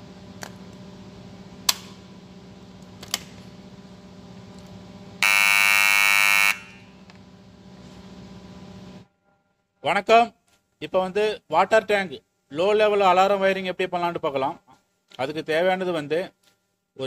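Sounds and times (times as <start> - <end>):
steady low hum: 0.0 - 9.9
alarm buzzer sounding: 5.2 - 7.0.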